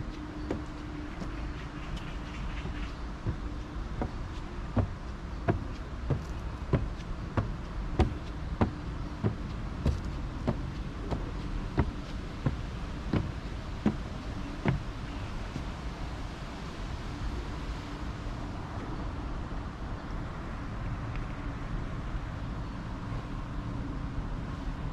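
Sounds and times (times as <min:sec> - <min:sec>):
footsteps on wooden stairs: 0:00.0 - 0:16.1.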